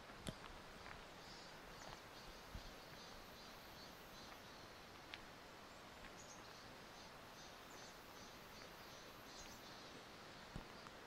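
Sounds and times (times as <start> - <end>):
faint steady hiss: 0.0 - 11.0
faint high bird chirps: 5.7 - 11.0.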